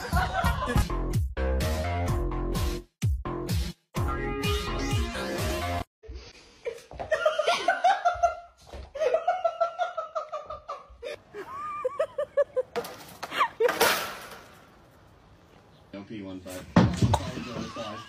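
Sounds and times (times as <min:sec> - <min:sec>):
person laughing hard: 0:06.7 - 0:13.8, 0:17.2 - 0:18.0.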